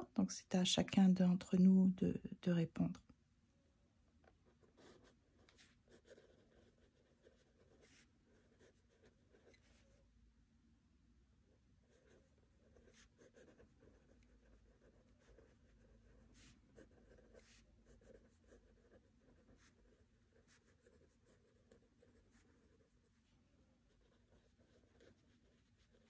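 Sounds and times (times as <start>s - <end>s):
pen scratching on paper: 4.5s - 9.8s, 11.8s - 23.0s, 23.9s - 26.0s.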